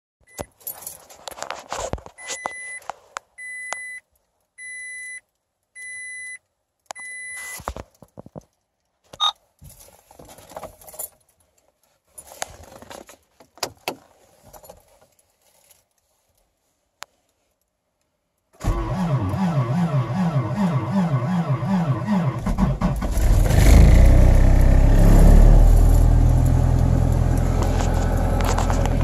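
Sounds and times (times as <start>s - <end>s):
keys jangling: 0.5s - 1.2s
car warning chime beeping: 3.4s - 4.0s, 4.6s - 5.2s, 5.8s - 6.4s.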